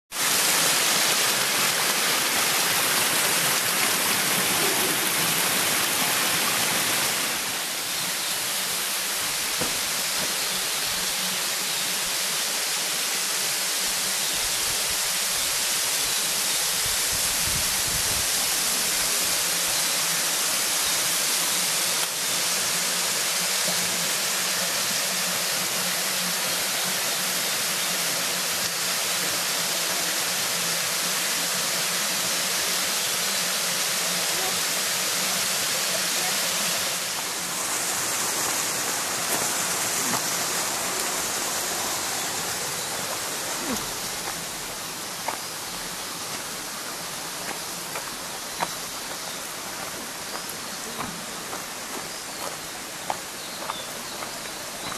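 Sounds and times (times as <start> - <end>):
waterfall pouring: 36.7 - 47.0.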